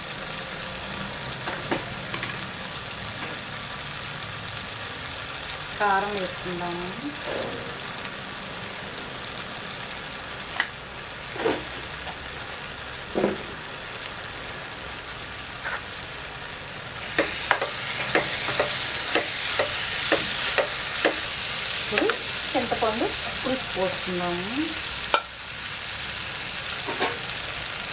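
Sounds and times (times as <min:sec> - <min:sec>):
food sizzling in a frying pan: 0:00.0 - 0:27.9
spatula scraping a pan: 0:15.6 - 0:15.9.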